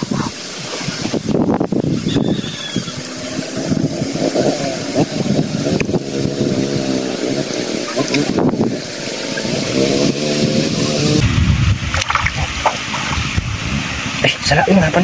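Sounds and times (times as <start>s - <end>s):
wind noise on microphone: 0.0s - 15.0s
small engine wavering: 1.6s - 11.3s.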